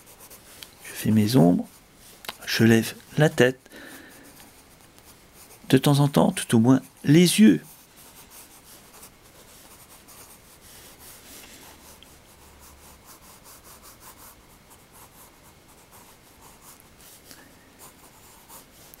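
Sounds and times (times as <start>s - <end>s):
pencil scratching on paper: 0.0s - 1.8s, 6.7s - 19.0s.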